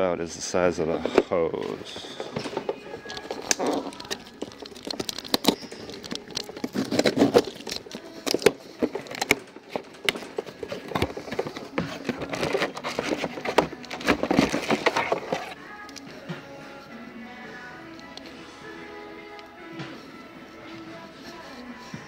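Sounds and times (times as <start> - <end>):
cardboard packaging rustling: 1.0 - 15.6
parts clicking and knocking: 1.0 - 16.0.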